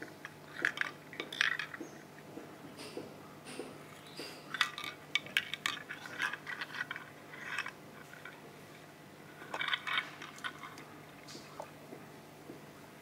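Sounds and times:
small clicks and rustles: 0:04.0 - 0:08.4.

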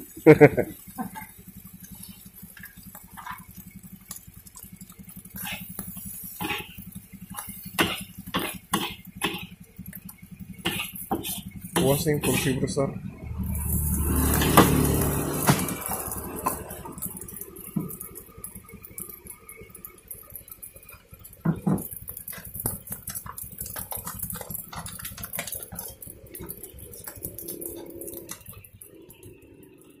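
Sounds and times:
metal spatula scraping wok: 0:10.7 - 0:12.7
paper crinkling: 0:22.3 - 0:28.6.

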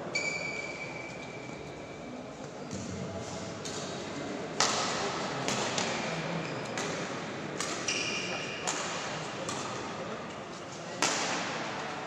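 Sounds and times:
racket smacking shuttlecock: 0:04.6 - 0:06.0, 0:07.6 - 0:09.8, 0:11.0 - 0:11.6.

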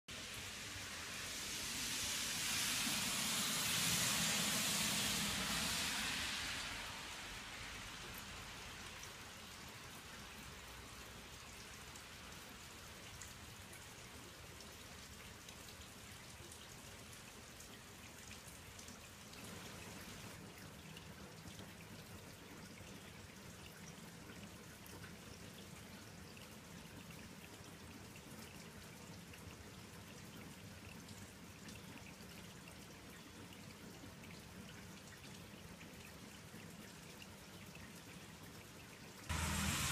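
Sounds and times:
faint outdoor hiss: 0:00.1 - 0:39.9
rush of noise: 0:00.2 - 0:07.9, 0:39.3 - 0:39.9.

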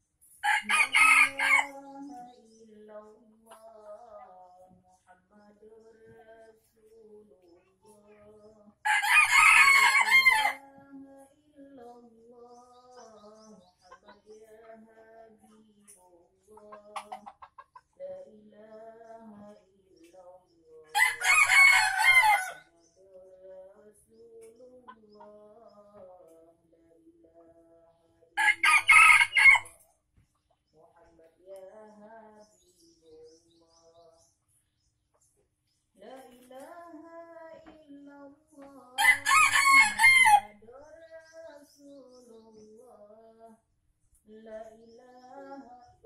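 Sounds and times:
rooster crowing: 0:00.4 - 0:01.7, 0:08.9 - 0:10.6, 0:21.0 - 0:22.6, 0:28.4 - 0:29.7, 0:39.0 - 0:40.6.

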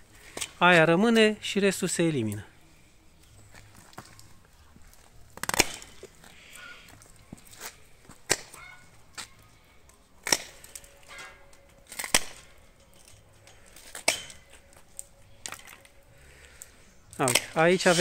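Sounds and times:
pruning shears snipping canes: 0:05.3 - 0:06.7, 0:10.2 - 0:18.0.

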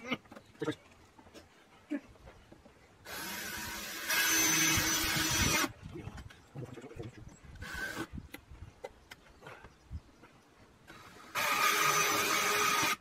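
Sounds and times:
cordless power tool whirring: 0:03.0 - 0:05.7, 0:07.6 - 0:08.1, 0:10.9 - 0:13.0.

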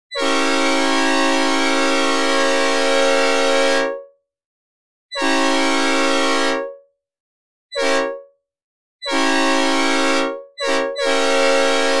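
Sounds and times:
synthesized train air horn blasts: 0:00.1 - 0:04.2, 0:05.1 - 0:06.9, 0:07.7 - 0:08.4, 0:09.0 - 0:12.0.

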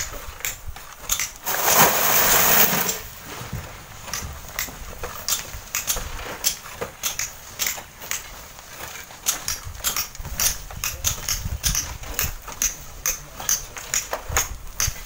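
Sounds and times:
poles scraping sand: 0:01.4 - 0:03.6
rush of sliding sand: 0:01.4 - 0:03.6
sand and stones clattering: 0:01.4 - 0:04.2.

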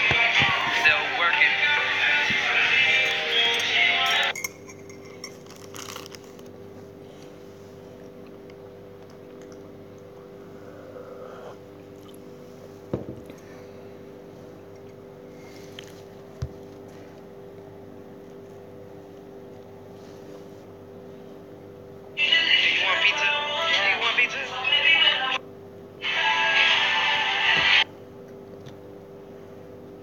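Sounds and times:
room noise hum: 0:00.0 - 0:30.0.

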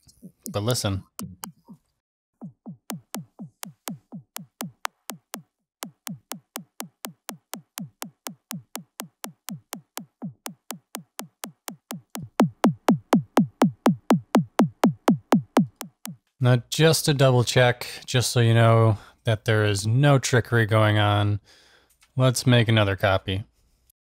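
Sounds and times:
synthetic kick hits: 0:02.4 - 0:16.2.

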